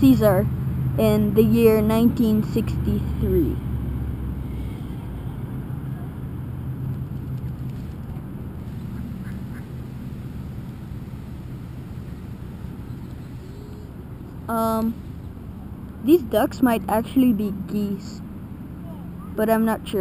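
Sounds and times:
low outdoor rumble: 0.0 - 20.0
ducks quacking faintly: 8.6 - 9.8.

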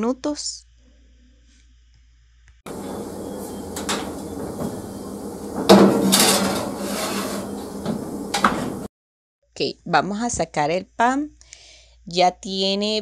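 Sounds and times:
metal tray clunking: 2.7 - 8.9
tray scraping against oven rack: 2.7 - 8.9.

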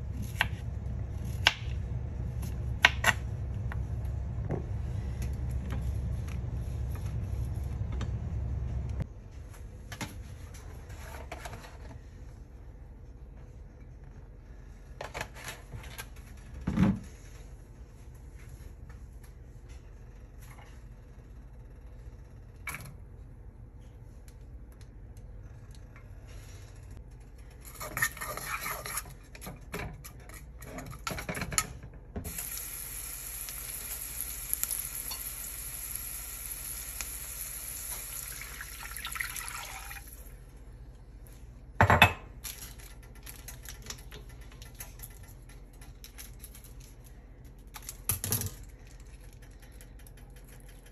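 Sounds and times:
vegetables sizzling in oil: 32.3 - 38.7.

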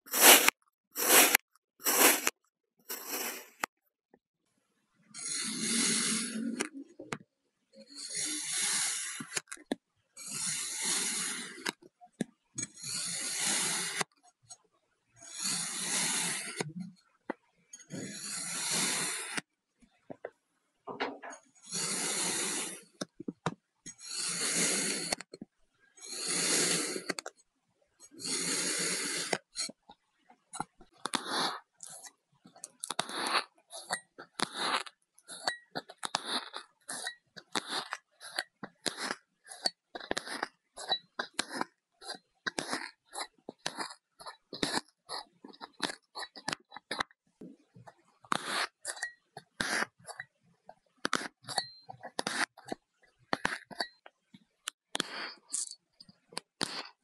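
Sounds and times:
kinetic sand crunching: 0.1 - 2.3
kinetic sand scraping: 0.1 - 3.7.

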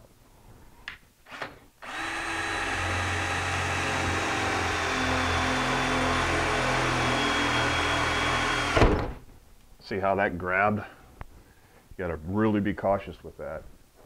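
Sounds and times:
cordless drill cutting metal: 1.8 - 8.8.

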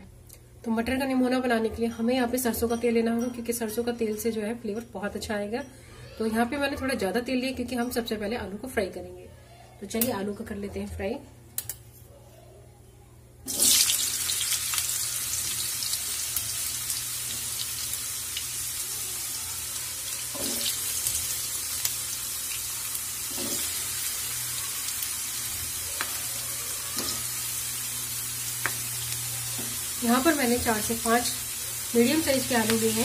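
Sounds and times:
potatoes sizzling in hot oil: 13.5 - 33.0.

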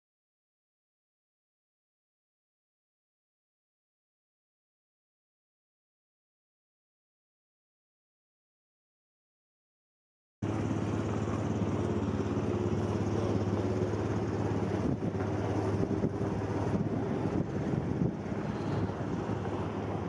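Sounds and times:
car engine idling: 10.4 - 20.0.

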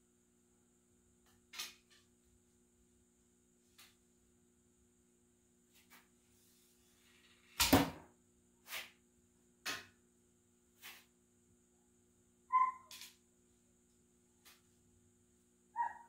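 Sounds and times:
high squeak: 12.5 - 13.0.

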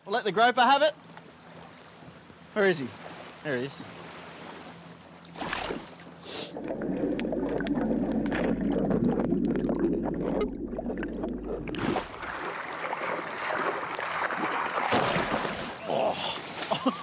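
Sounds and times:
water splashing and sloshing: 1.0 - 17.0
muffled underwater rumble: 6.5 - 11.9.

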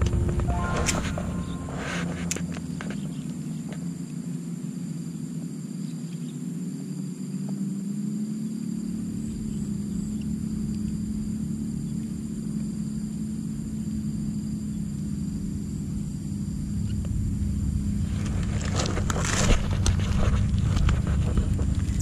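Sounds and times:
handling crackles and knocks: 18.2 - 22.0.

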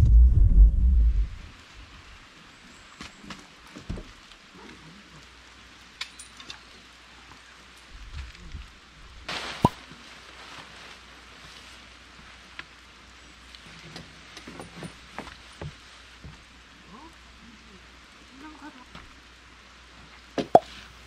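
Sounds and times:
light rain pattering: 1.2 - 21.0
tarp rustling: 8.0 - 13.0.

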